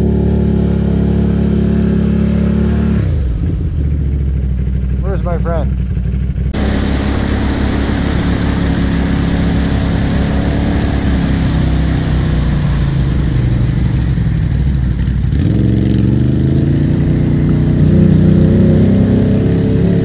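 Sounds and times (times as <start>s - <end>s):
quad bike engine under load: 0.0s - 20.0s
wind noise: 6.5s - 15.6s
rush of churned water: 6.6s - 15.2s.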